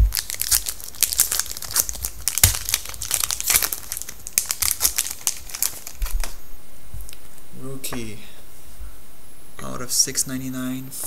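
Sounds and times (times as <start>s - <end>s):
foil wrapper tearing and crinkling: 0.0s - 6.4s.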